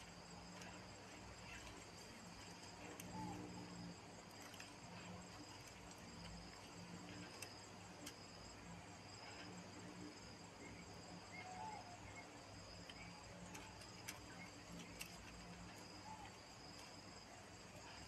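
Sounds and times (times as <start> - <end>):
crickets chirring: 0.0 - 18.0.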